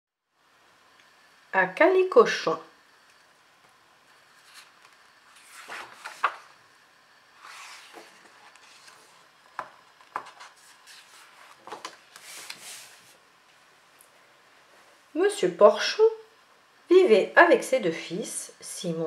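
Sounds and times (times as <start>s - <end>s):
book pages rustling: 4.0s - 6.6s, 7.4s - 13.2s
pages flapping and tapping: 4.2s - 6.6s, 7.4s - 13.0s.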